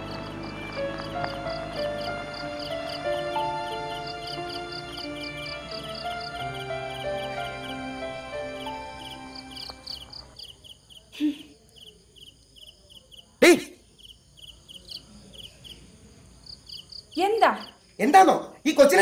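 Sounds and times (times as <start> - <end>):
soft background music: 0.0 - 10.4
crickets chirping: 0.0 - 19.0.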